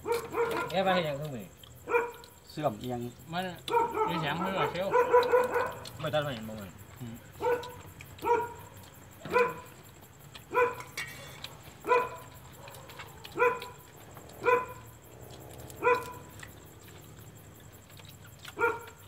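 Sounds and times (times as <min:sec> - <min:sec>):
dog barking: 0:00.0 - 0:01.2, 0:01.8 - 0:02.4, 0:03.6 - 0:06.2, 0:07.3 - 0:09.8, 0:10.4 - 0:15.0, 0:15.7 - 0:16.9, 0:17.9 - 0:19.0.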